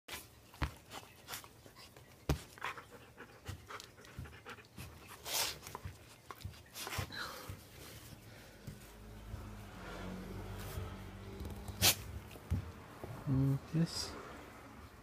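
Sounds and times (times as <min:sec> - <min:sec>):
dog panting and snuffling: 0:00.7 - 0:09.8.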